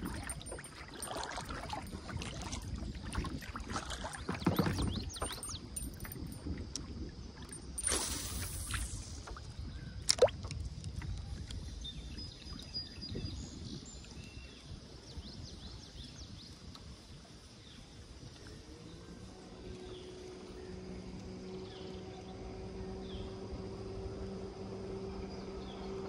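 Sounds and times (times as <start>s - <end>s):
lure splashing into water: 0.0s - 10.6s
water lapping against kayak hull: 0.0s - 13.2s
low wind rumble: 0.0s - 14.0s.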